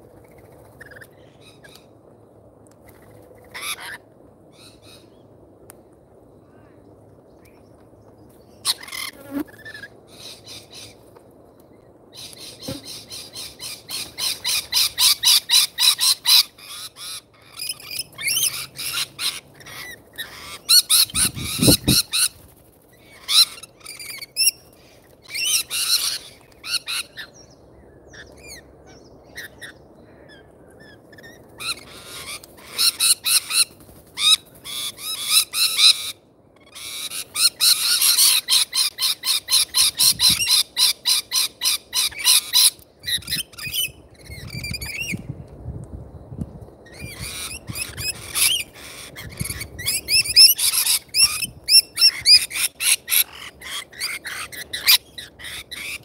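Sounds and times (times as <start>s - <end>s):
parrots screeching: 3.5s - 4.0s, 13.9s - 22.3s, 23.1s - 24.5s, 25.3s - 27.3s, 31.2s - 45.0s, 46.9s - 56.0s.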